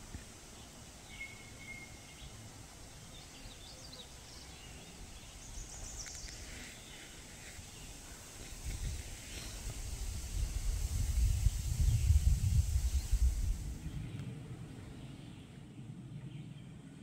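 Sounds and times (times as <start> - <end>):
pond ambience: 0.0 - 15.8
wind rumble on microphone: 7.8 - 17.0.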